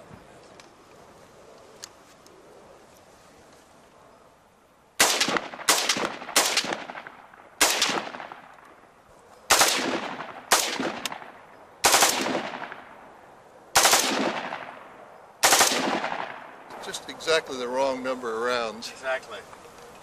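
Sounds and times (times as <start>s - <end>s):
rifle firing bursts: 5.0s - 8.5s, 9.5s - 12.8s, 13.8s - 14.8s, 15.4s - 16.5s.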